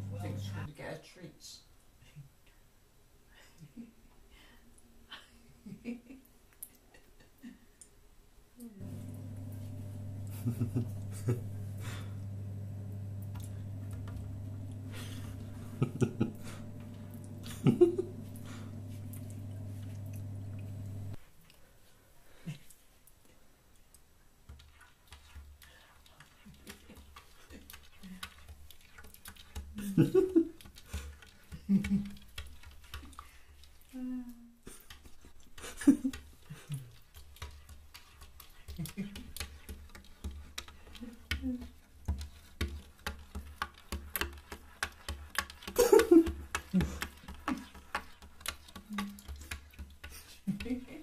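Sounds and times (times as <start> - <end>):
steady low hum: 0.0 - 0.7, 8.8 - 21.2.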